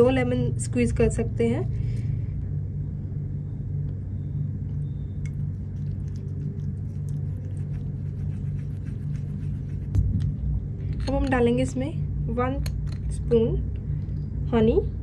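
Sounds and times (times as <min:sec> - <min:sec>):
steady low hum: 0:00.0 - 0:15.0
stick stirring paste in bowl: 0:04.7 - 0:10.3.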